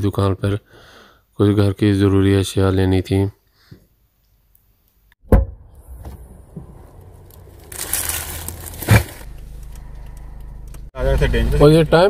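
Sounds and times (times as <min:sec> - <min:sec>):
sharp knock: 0:05.2 - 0:05.6
car engine idling: 0:05.6 - 0:12.0
mesh sack crinkling and rustling: 0:07.2 - 0:09.7
sack thumping down: 0:07.7 - 0:09.3.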